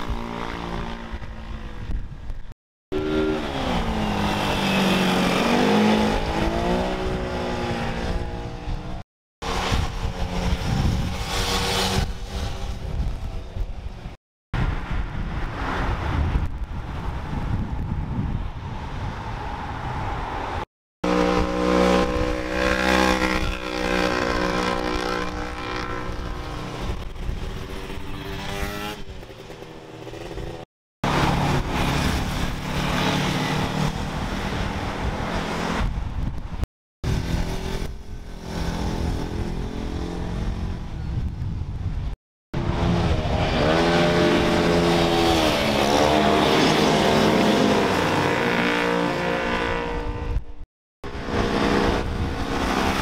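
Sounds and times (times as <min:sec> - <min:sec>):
vehicle engines revving: 0:02.9 - 0:13.6, 0:20.2 - 0:36.3, 0:42.6 - 0:50.4, 0:51.0 - 0:53.0.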